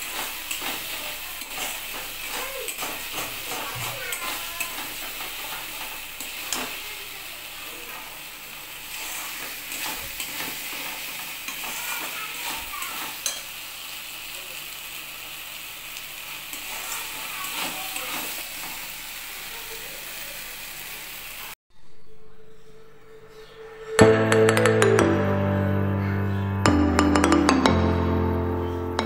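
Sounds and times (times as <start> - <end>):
spatula scraping metal pan: 0.0 - 6.8, 8.9 - 13.5
fish sizzling in oil: 0.0 - 21.6.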